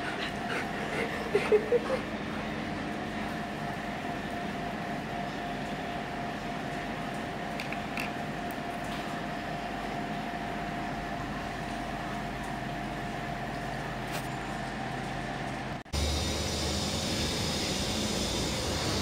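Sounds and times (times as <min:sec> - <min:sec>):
mechanical whirring hum: 0:00.0 - 0:19.0.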